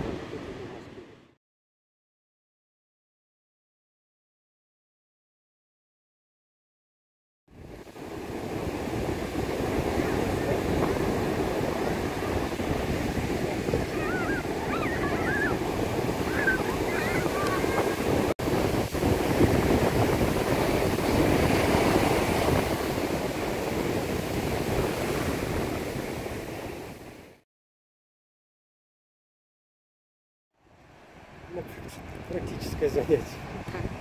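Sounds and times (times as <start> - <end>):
surf breaking on beach: 7.6 - 27.4
faint high calls: 13.9 - 17.9.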